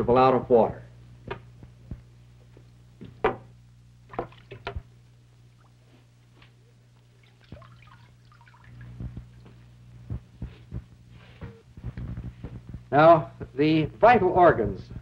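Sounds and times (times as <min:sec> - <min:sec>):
steady low hum: 0:00.0 - 0:15.0
water trickling and dripping: 0:07.0 - 0:09.6
water splashing: 0:07.1 - 0:09.0.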